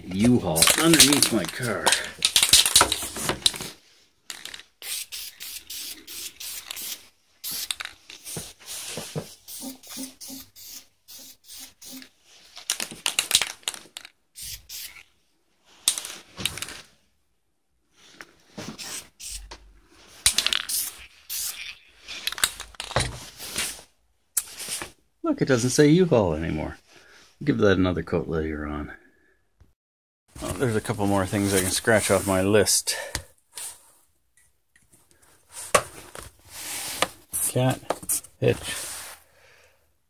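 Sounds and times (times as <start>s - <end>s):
spray paint can hissing: 4.8s - 12.1s, 14.4s - 15.0s, 18.8s - 19.5s, 20.2s - 22.4s.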